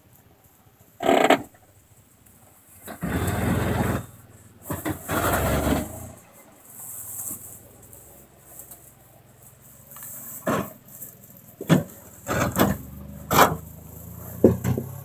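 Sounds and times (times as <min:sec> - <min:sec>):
engine idling low: 0:00.0 - 0:15.0
engine revving: 0:02.8 - 0:06.5, 0:09.7 - 0:15.0.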